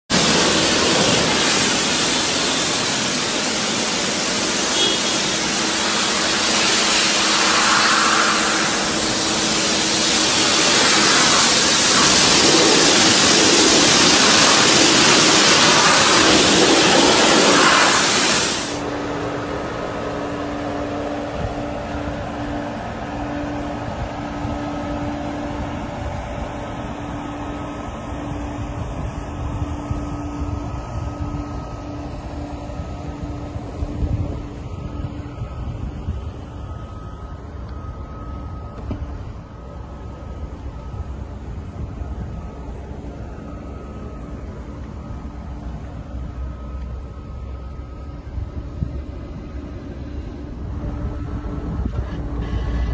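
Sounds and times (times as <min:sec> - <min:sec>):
pressure washer spray hissing: 0:00.1 - 0:18.8
steady low hum: 0:00.1 - 0:52.9.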